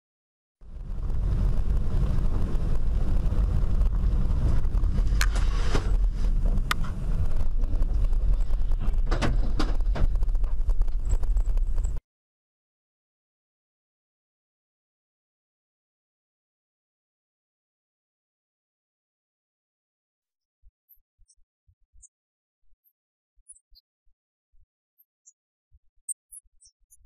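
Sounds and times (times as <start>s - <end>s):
car engine and road rumble: 0.6s - 12.0s.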